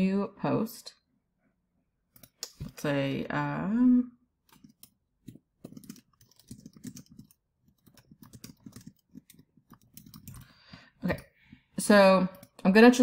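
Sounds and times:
computer keyboard typing: 4.4 - 13.0.

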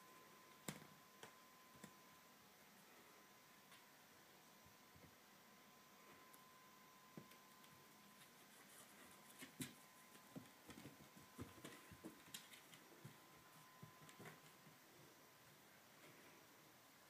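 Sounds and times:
kitten paws tapping on wooden floor: 7.2 - 14.8.

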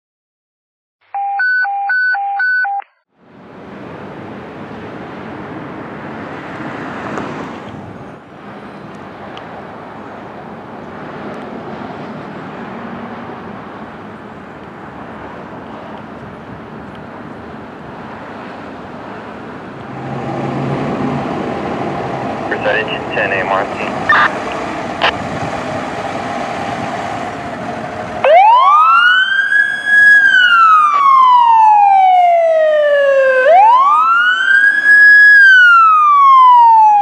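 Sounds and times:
street noise: 3.1 - 37.0
electronic alert beeps: 24.1 - 24.4.

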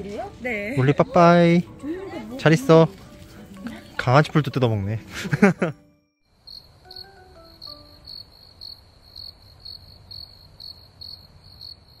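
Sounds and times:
crickets chirping: 6.2 - 12.0.

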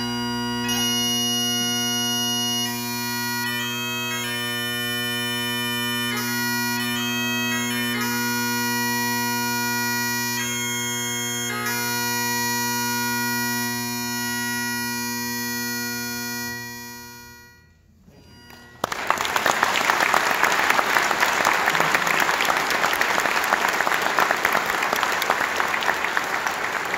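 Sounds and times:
audience applause: 18.7 - 26.9.

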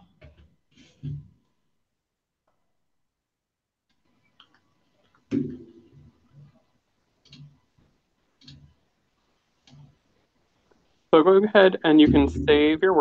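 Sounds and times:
computer mouse clicks: 7.2 - 7.7, 8.4 - 8.8
dull thud: 12.0 - 12.7.

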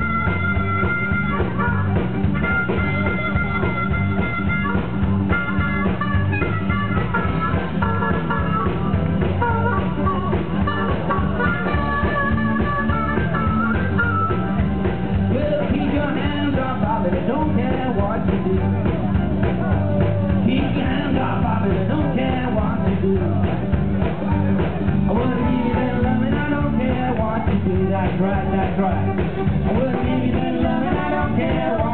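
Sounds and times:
live band playing upbeat music: 0.0 - 31.9
steady bass line: 0.0 - 31.9.

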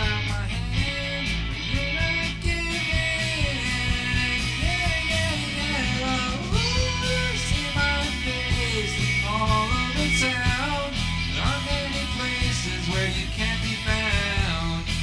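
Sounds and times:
bass guitar: 0.0 - 15.0
drums: 0.0 - 15.0
electric guitar: 0.0 - 15.0.

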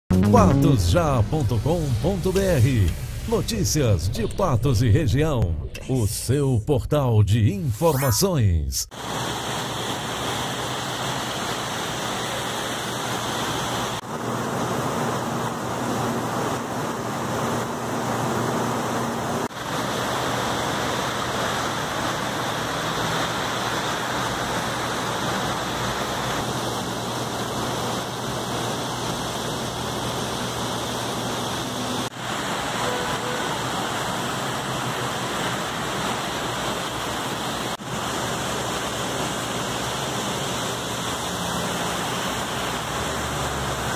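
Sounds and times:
heavy rain pouring: 9.0 - 43.9.

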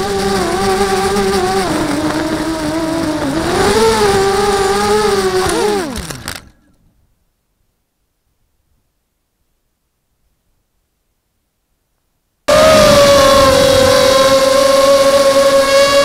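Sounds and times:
drone motors whining: 0.0 - 6.6, 12.5 - 16.0.

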